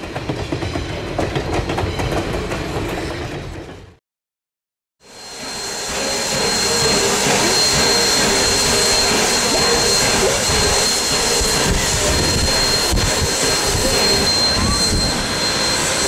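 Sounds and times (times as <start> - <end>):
high steady whine: 5.1 - 16.0
steam hissing: 5.1 - 16.0.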